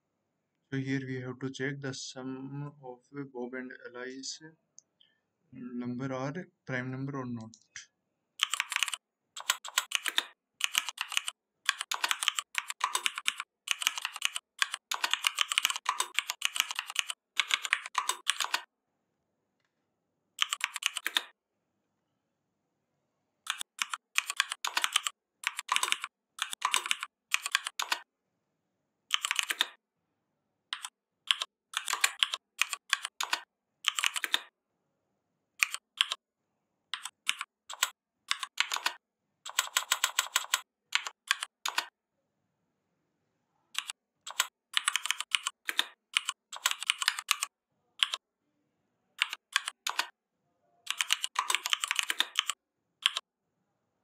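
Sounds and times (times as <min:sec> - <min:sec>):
typing on keyboard: 0:08.4 - 0:18.7, 0:20.4 - 0:21.4, 0:23.4 - 0:28.1, 0:29.1 - 0:29.8, 0:30.7 - 0:34.5, 0:35.6 - 0:36.2, 0:36.9 - 0:41.9, 0:43.7 - 0:48.2, 0:49.2 - 0:50.2, 0:50.9 - 0:53.3.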